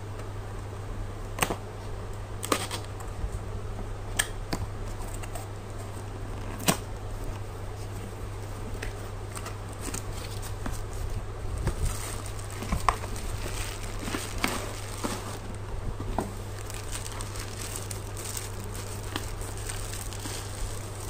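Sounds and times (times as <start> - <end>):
bubble wrap crinkling: 4.9 - 21.0.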